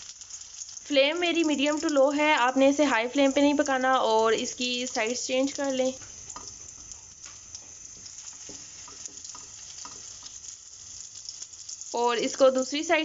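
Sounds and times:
cutlets sizzling in oil: 0.0 - 13.0
fork clicking in pan: 8.8 - 10.4.

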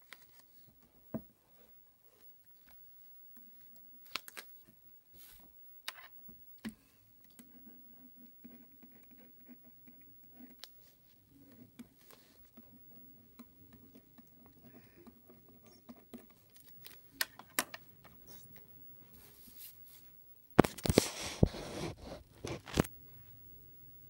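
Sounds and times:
fabric rubbing on microphone: 20.8 - 22.9.

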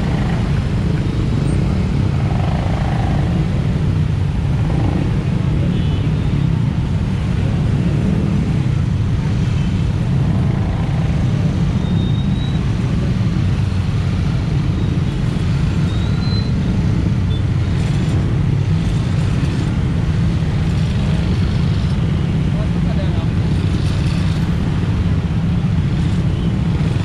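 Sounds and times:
road traffic noise: 0.0 - 27.0.

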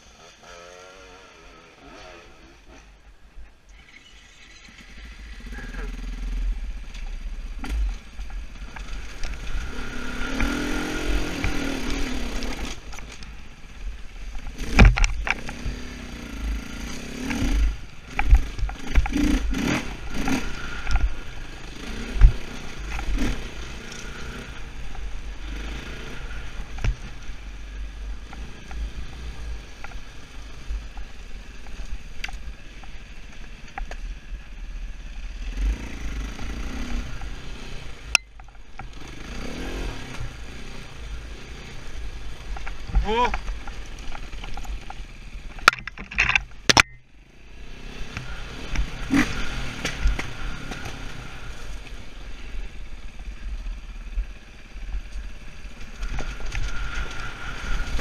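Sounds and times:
motorcycle engine revving: 0.0 - 3.1, 3.7 - 58.0
bike knocking and clattering: 42.5 - 47.0.

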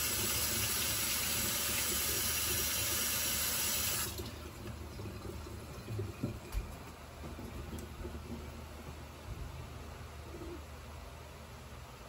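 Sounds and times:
kitchen tap running: 0.0 - 9.0.

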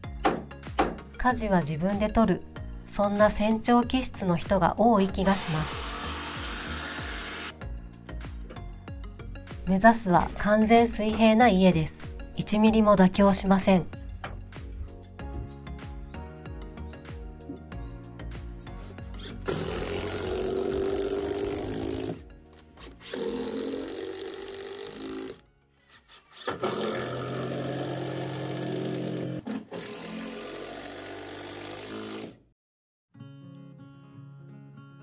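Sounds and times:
background music: 0.0 - 25.9.

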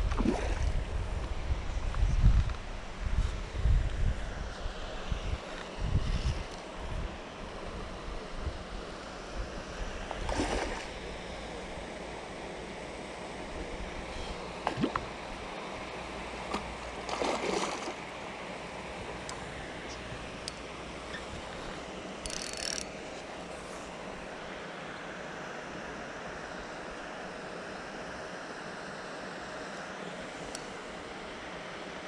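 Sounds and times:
wind noise on microphone: 0.0 - 7.2.

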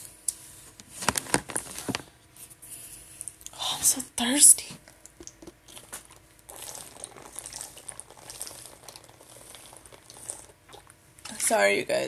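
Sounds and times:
water gurgling in plastic bottle: 5.8 - 11.0.

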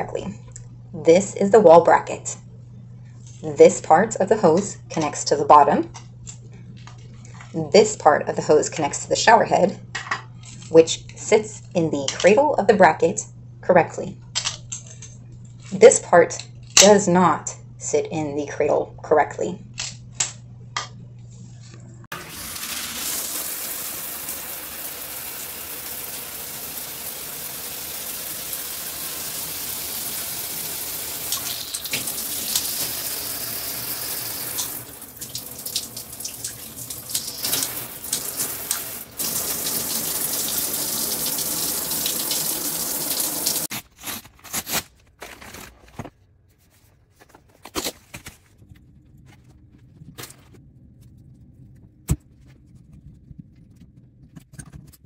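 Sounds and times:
water spraying from shower head: 22.1 - 43.7.

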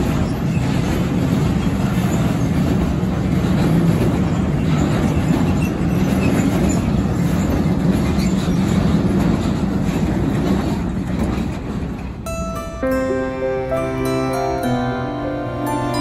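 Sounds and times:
freight train wheels rumbling: 0.0 - 16.0
soft plucked music: 12.3 - 16.0.

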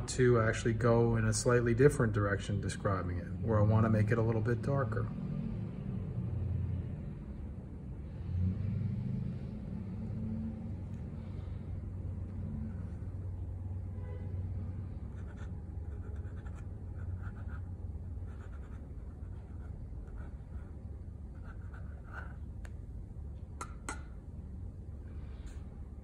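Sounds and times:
low hum: 0.0 - 26.0
pen nib scratching paper: 15.1 - 22.5.

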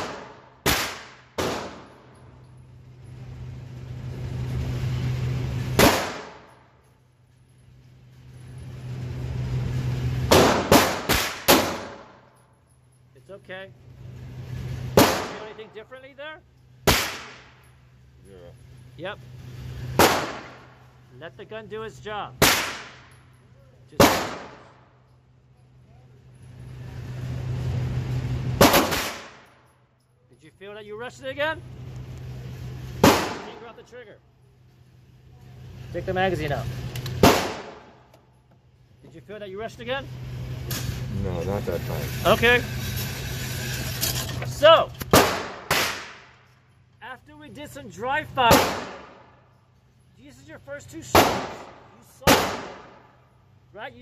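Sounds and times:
handgun shots: 0.0 - 1.9, 5.8 - 6.4, 10.3 - 12.1, 15.0 - 15.5, 16.9 - 17.5, 20.0 - 20.6, 22.4 - 23.1, 24.0 - 24.6, 28.6 - 29.4, 33.0 - 33.6, 37.1 - 37.9, 45.0 - 46.3, 48.5 - 49.2, 51.2 - 53.0
steady low hum: 0.0 - 54.0.

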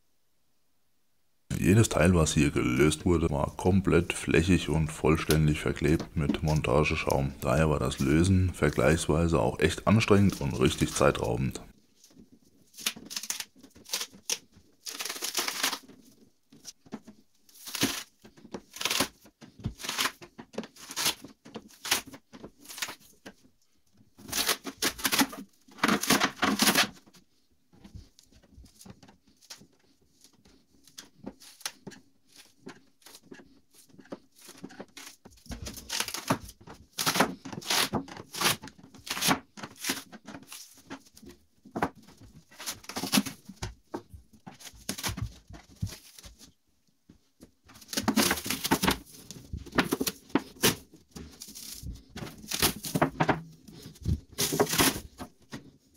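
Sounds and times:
metal sheet crinkling: 1.6 - 11.7
foam tearing: 12.7 - 16.0, 17.5 - 19.2, 19.8 - 23.0, 34.4 - 40.8, 54.4 - 55.1.

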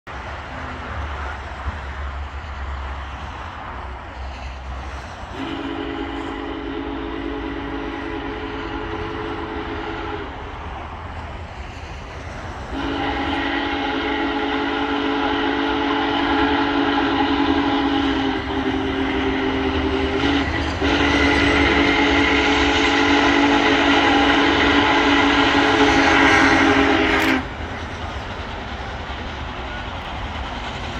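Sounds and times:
steam whistle blasts: 5.3 - 10.5, 12.7 - 27.6.

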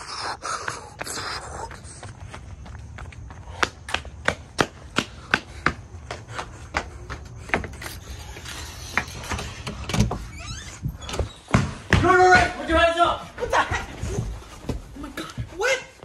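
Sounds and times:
quick footsteps on hard surface: 0.4 - 9.2.

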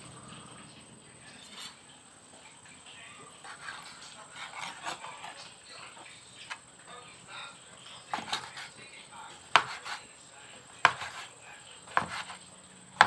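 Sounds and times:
knife slicing raw liver: 3.5 - 5.1, 8.1 - 8.7, 9.6 - 10.0, 10.8 - 11.3, 11.9 - 12.4
knife tapping cutting board: 8.1 - 8.7, 9.5 - 10.0, 10.8 - 11.3, 11.9 - 12.4.

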